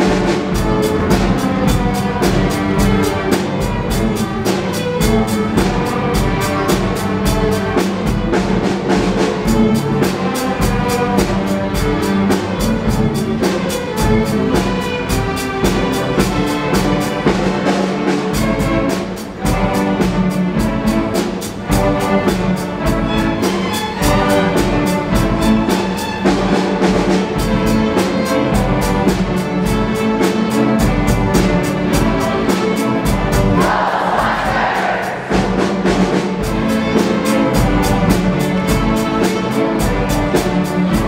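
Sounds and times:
string orchestra playing: 0.0 - 41.0.

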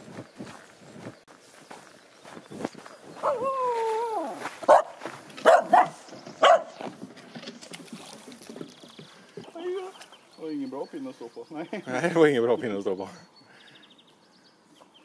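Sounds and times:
dog barking: 4.7 - 6.8.

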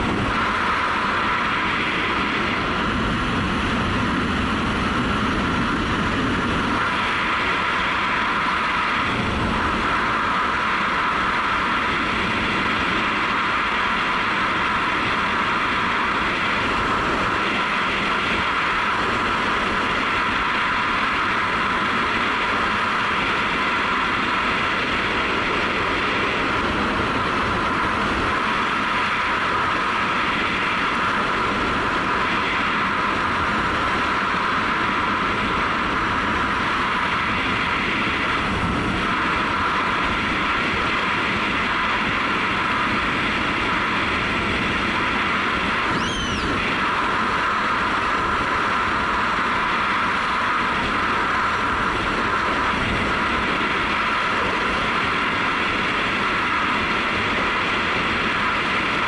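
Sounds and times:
wind rush over helmet camera: 0.0 - 20.7, 24.8 - 47.3
road noise: 26.0 - 56.8
short high whistle: 45.9 - 46.6.

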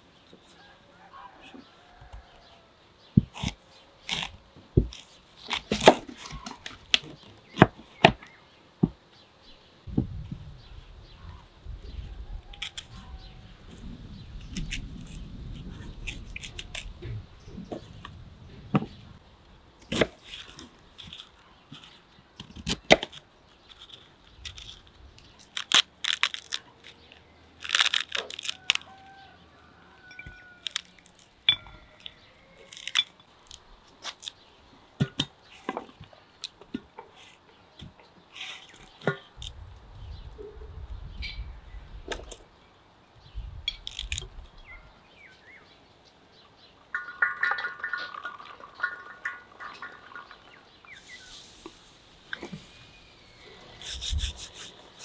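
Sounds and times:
pomegranate rind cracking: 14.5 - 17.0, 19.8 - 29.0, 30.2 - 34.4, 43.7 - 44.5
seeds crackling: 22.7 - 29.1, 30.6 - 31.4, 46.9 - 55.0
knife crunching through fruit: 25.4 - 27.0, 27.6 - 28.9.

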